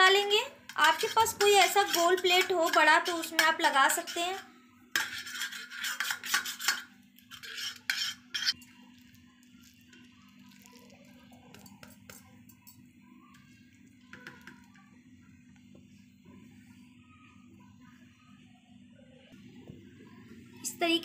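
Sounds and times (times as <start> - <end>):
spoon scraping metal plate: 0.6 - 8.7.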